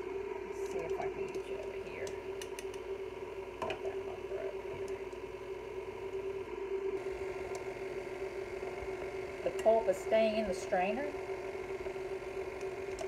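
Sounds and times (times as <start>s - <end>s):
stand mixer motor humming: 7.0s - 13.0s.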